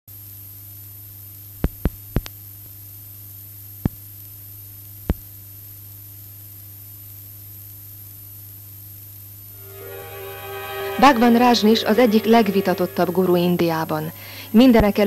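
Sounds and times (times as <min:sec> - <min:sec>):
faint high-pitched whine: 0:00.1 - 0:15.0
low electrical hum: 0:00.1 - 0:15.0
sharp clicks: 0:01.6 - 0:02.4.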